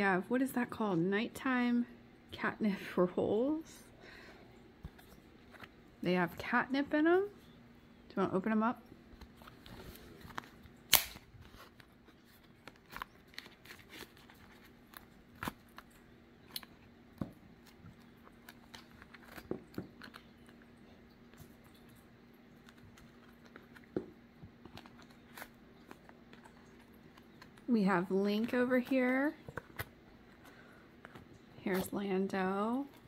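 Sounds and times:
faint steady hum: 0.0 - 33.0
packaging tearing and rustling: 9.2 - 16.9, 17.6 - 20.6, 24.6 - 27.7
sharp snap: 10.9 - 11.2.

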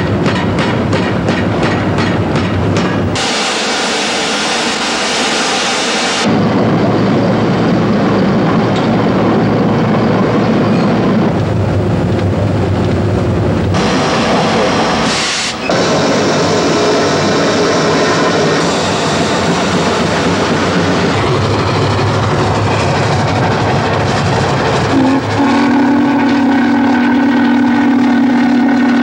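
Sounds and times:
deep locomotive engine rumble: 0.0 - 29.0
steam locomotive hiss: 3.1 - 6.3, 13.8 - 22.2.

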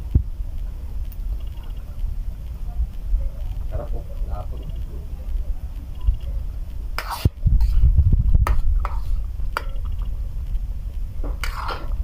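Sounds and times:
steady low rumble: 0.0 - 12.0
ladle scraping pan: 7.0 - 7.8, 11.4 - 12.0.

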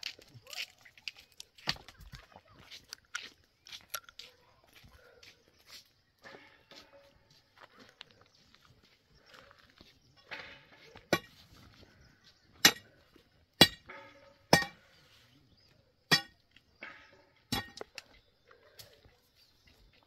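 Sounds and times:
metal tool striking rock: 10.3 - 11.4, 12.6 - 13.0, 13.6 - 15.0, 16.1 - 18.1.

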